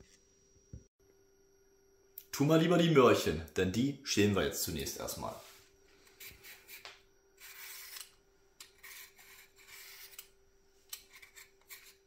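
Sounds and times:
peeler scraping a carrot: 0:06.1 - 0:12.0.

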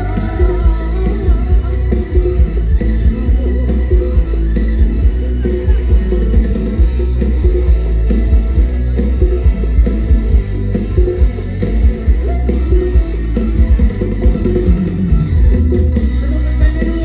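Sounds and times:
live band through speakers: 0:00.0 - 0:17.0.

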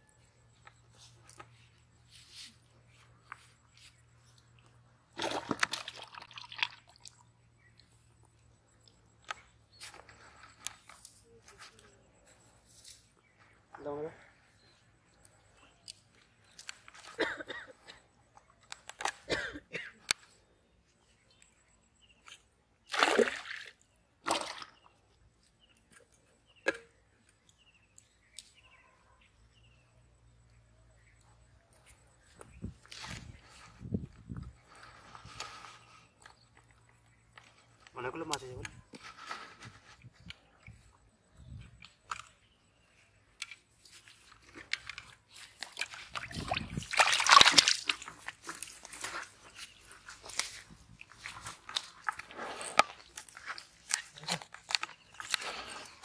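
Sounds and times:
water splashing in a bowl: 0:05.1 - 0:07.4, 0:22.9 - 0:24.9, 0:45.6 - 0:49.2.

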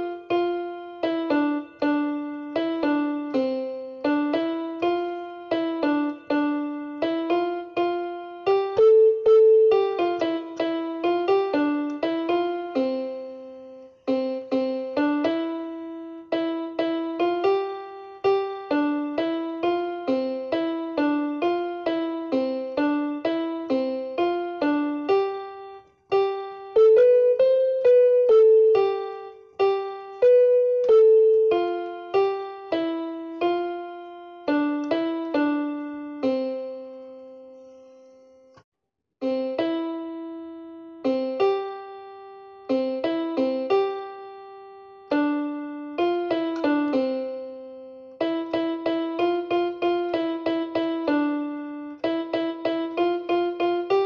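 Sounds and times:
solo piano melody: 0:00.0 - 0:54.0.

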